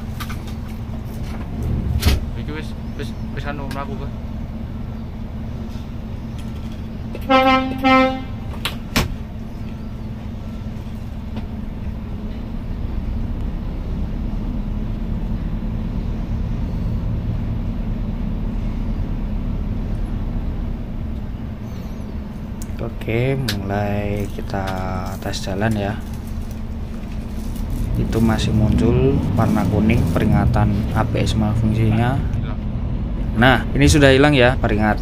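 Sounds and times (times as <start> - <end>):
truck diesel engine running: 0.0 - 35.0
truck horn toots: 7.2 - 8.6.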